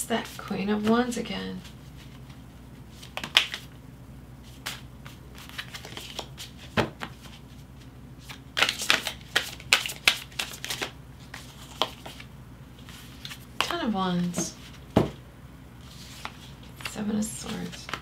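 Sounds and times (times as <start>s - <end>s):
cards being shuffled: 1.6s - 3.8s, 4.4s - 7.6s, 8.2s - 15.1s, 15.8s - 18.0s.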